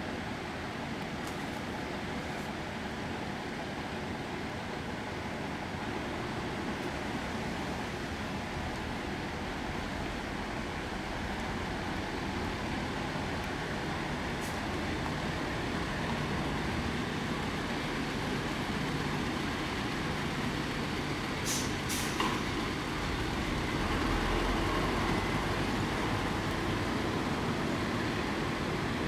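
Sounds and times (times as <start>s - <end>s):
diesel coach engine rumbling: 1.7s - 29.0s
air-brake hisses: 21.4s - 22.4s.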